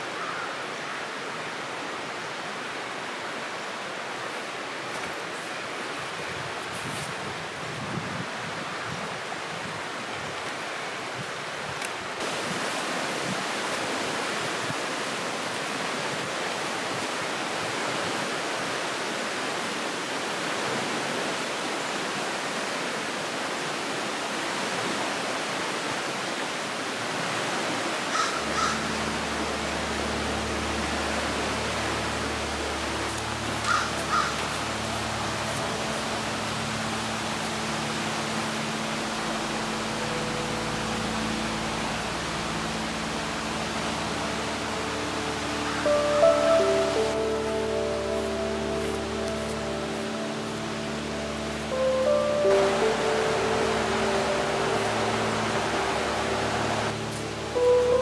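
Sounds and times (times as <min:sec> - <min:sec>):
river rapids rushing: 0:00.0 - 0:58.0
crow cawing: 0:00.2 - 0:01.0, 0:28.1 - 0:28.9, 0:33.6 - 0:34.5.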